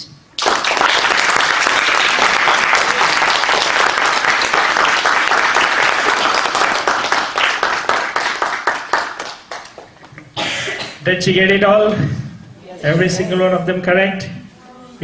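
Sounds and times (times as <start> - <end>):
audience applause: 0.4 - 10.1.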